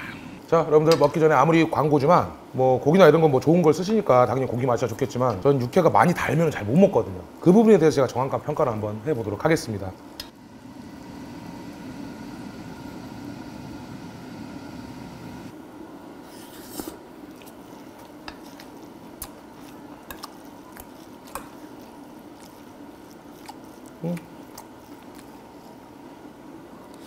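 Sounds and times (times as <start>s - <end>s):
spoon mixing rice in metal bowl: 16.8s - 25.3s
person chewing and eating: 17.3s - 25.5s.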